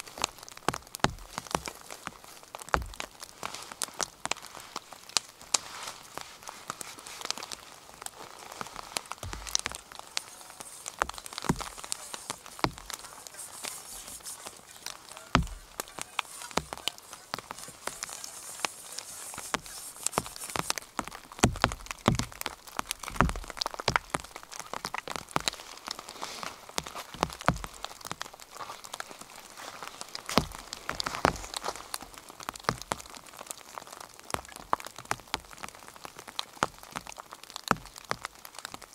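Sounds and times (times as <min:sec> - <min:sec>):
steady rain hiss: 0:00.0 - 0:38.9
dull thumps: 0:00.7 - 0:01.7, 0:02.7 - 0:03.1, 0:09.2 - 0:10.2, 0:10.8 - 0:14.6, 0:15.3 - 0:24.3
water drops tapping: 0:14.7 - 0:17.7.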